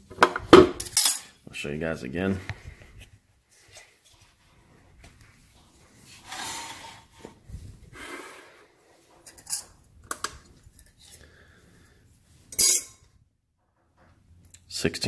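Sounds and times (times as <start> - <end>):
steel piece clinking on glass: 12.5 - 13.0.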